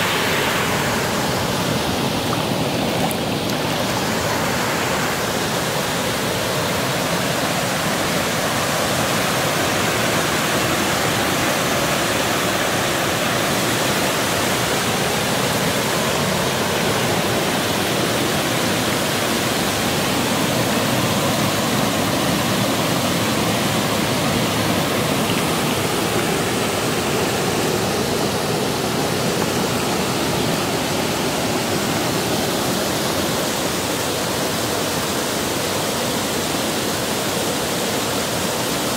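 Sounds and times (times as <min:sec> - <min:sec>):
water rushing over weir: 0:00.0 - 0:38.9.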